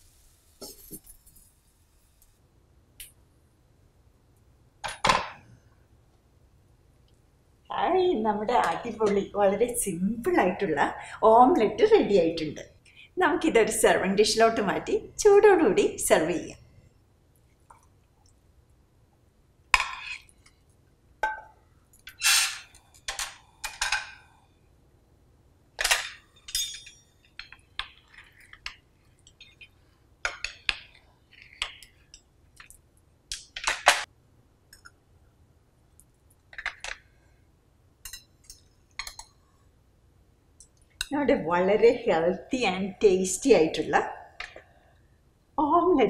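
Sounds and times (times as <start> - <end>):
utensil clinking on ceramic plate: 26.4 - 27.1.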